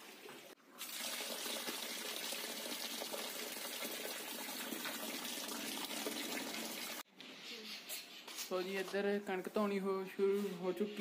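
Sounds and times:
tap water pouring into a tub: 0.0 - 7.0.

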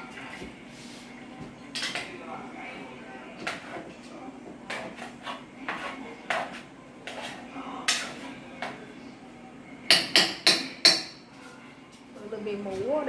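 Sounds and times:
pots and utensils clattering: 1.7 - 2.2.

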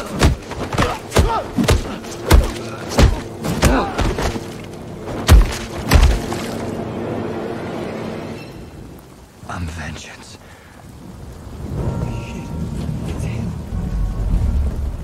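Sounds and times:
heavy punches landing: 0.0 - 4.6, 5.2 - 6.4.

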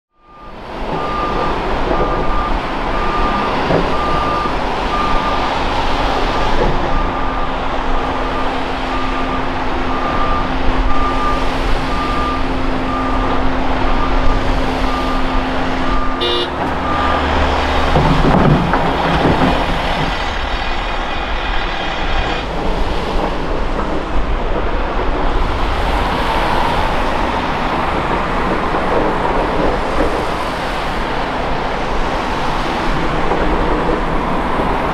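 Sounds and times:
reversing alarm beeping: 0.1 - 5.5, 6.8 - 18.2
diesel engines running: 0.2 - 34.9.

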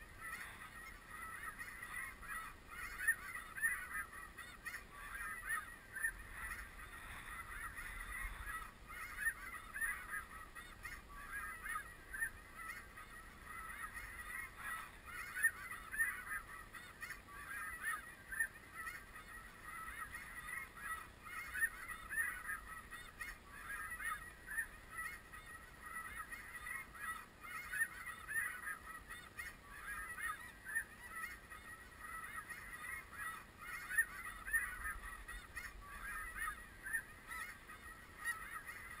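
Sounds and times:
geese honking: 0.0 - 39.0.

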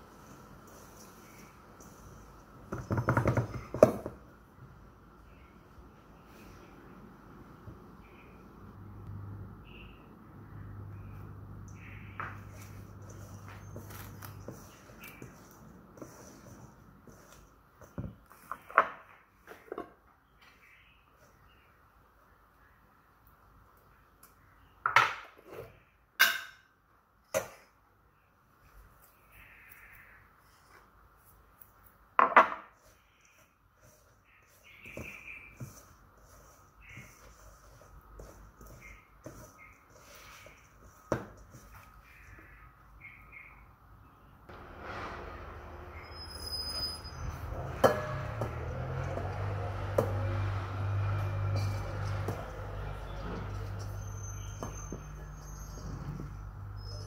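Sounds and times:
spatula scraping metal bowl: 11.7 - 18.6, 32.8 - 42.4, 44.5 - 57.0.

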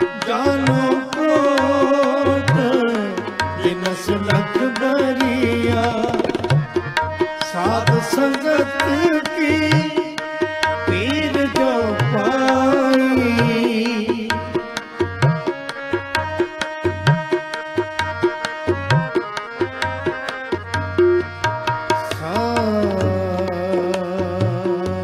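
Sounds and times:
person singing ornamented lines: 0.0 - 6.4, 7.3 - 15.5, 22.0 - 25.0
harmoniums playing chords: 0.0 - 25.0
tabla drumming: 0.0 - 25.0.

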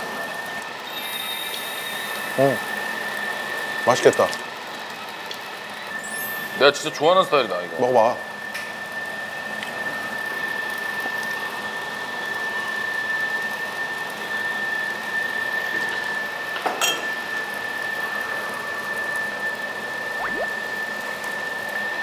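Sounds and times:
high-pitched whine: 20.2 - 20.6.

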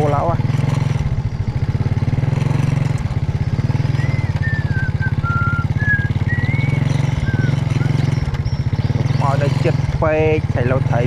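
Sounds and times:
small motorbike engine running: 0.0 - 11.0
thin whistled notes: 3.8 - 8.7.

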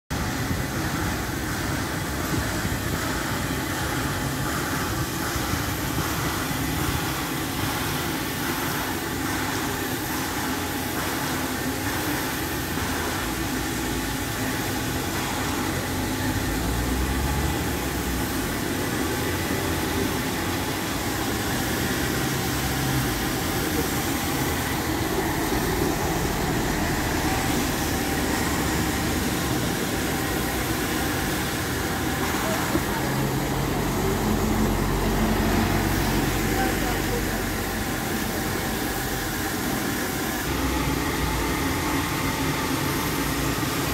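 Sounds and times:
traffic and engine rumble: 12.5 - 43.9.

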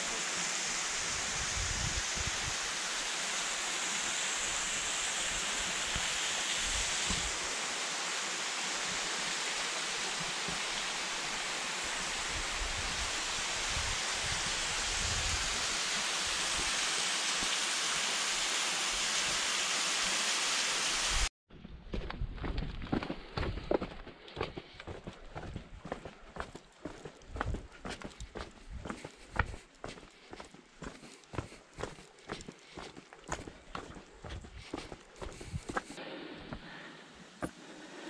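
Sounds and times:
rushing water roar: 0.0 - 21.3.

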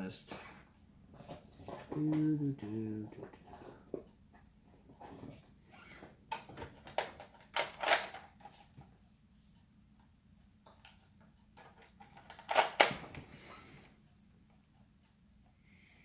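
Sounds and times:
toy blaster clicks and clacks: 6.9 - 8.3.

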